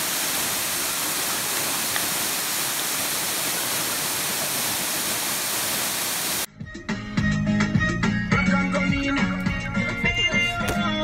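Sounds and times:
waterfall rushing into pool: 0.0s - 6.5s.

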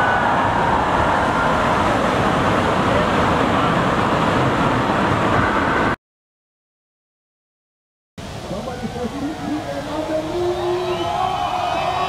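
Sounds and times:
heavy surf breaking: 0.0s - 6.0s, 8.2s - 12.0s.

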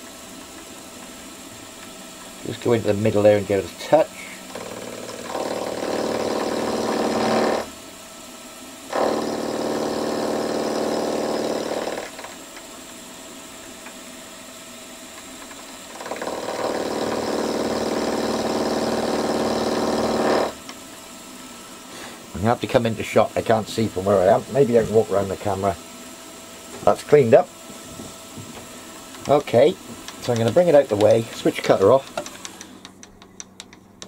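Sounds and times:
milling cutter whine: 0.0s - 7.8s, 8.9s - 34.0s
spindle hum: 21.3s - 34.0s.

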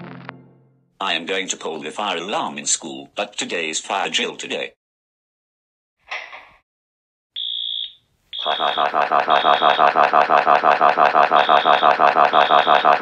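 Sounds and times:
fire alarm ringing: 7.4s - 13.0s
high beeping tone: 8.4s - 9.9s, 11.3s - 13.0s.

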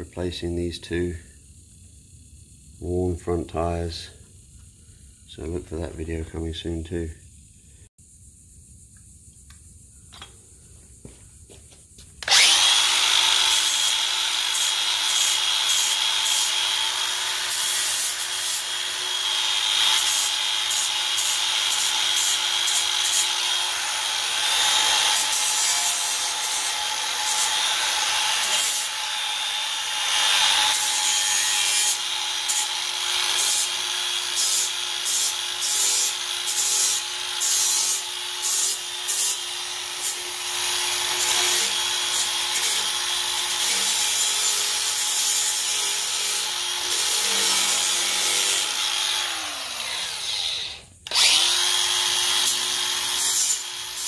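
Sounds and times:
angle grinder whine: 11.0s - 54.0s.

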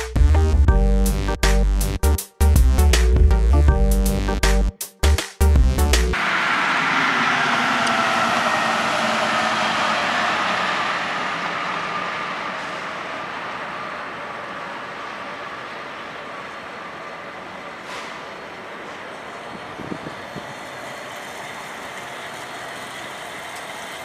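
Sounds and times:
heavy vehicle engine rumbling: 6.1s - 24.0s.

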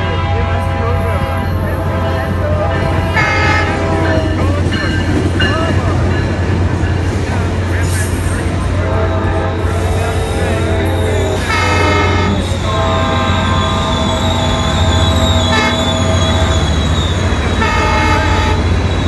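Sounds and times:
train horn chord blasts: 0.0s - 4.4s, 8.8s - 16.6s, 17.6s - 18.7s
diesel train droning: 0.0s - 19.0s.

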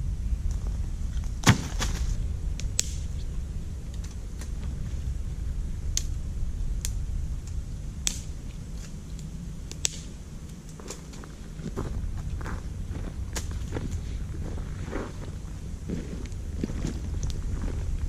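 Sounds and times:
low steady rumble: 0.0s - 18.0s
dry wood snapping: 1.2s - 3.2s, 6.8s - 11.3s.

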